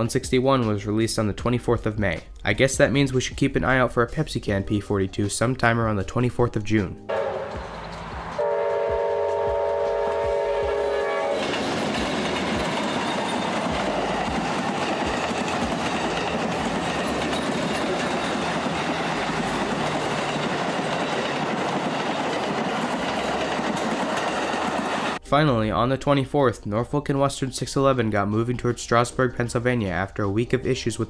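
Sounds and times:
train horn chord: 0:07.1 - 0:11.7
train wheels rushing on rails: 0:07.1 - 0:25.2.

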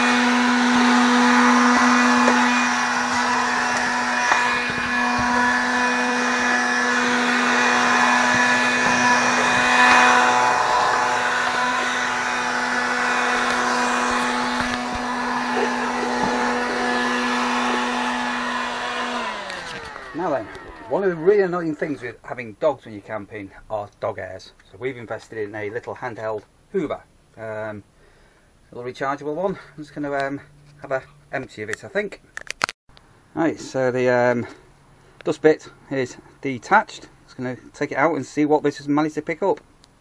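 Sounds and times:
handheld vacuum cleaner running: 0:00.0 - 0:21.5.

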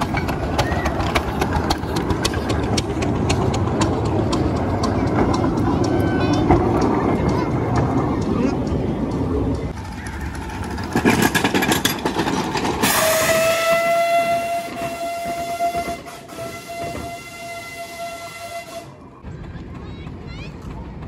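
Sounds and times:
rapid locomotive chuffing beats: 0:00.0 - 0:21.0
steam locomotive whistle: 0:12.8 - 0:19.0.

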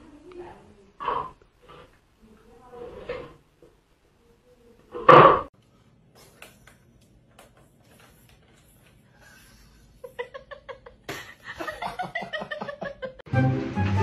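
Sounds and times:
person laughing: 0:09.8 - 0:13.2
music: 0:13.3 - 0:14.0.

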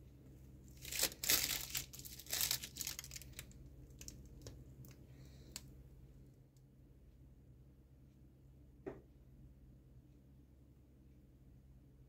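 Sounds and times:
plastic piping bag crinkling: 0:00.7 - 0:05.6.

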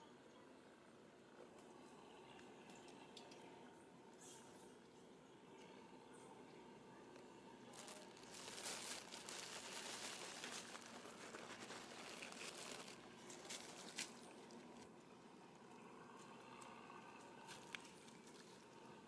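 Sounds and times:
dry leaves rustling underfoot: 0:07.7 - 0:14.9.

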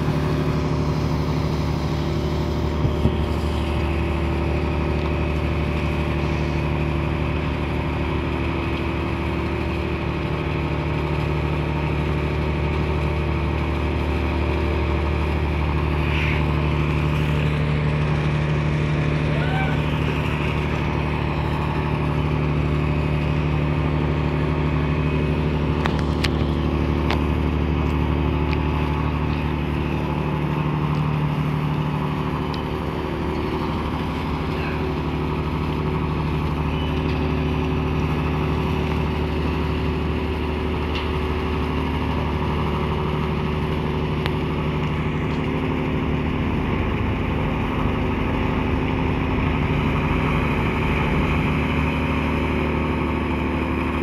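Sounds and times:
hiss of wind and water: 0:00.0 - 0:25.8
ship diesel engine droning: 0:00.0 - 0:54.0.

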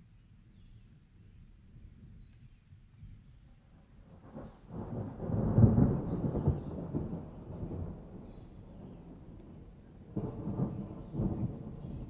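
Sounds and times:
rain: 0:00.0 - 0:12.0
thunder rumbling: 0:04.3 - 0:12.0.

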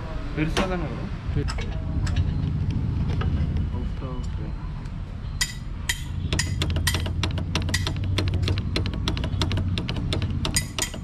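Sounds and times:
metallic clicks and taps: 0:05.4 - 0:11.0.

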